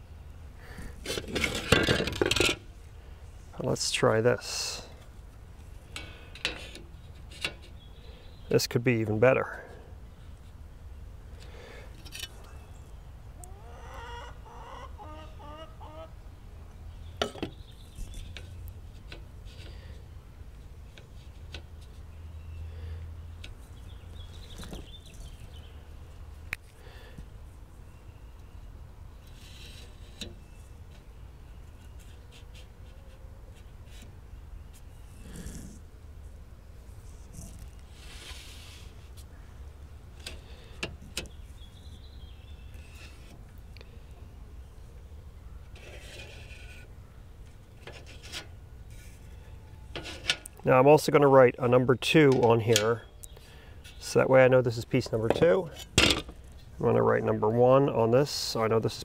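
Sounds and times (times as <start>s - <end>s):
metal sliding scrape: 37.9s - 39.0s, 45.8s - 46.9s.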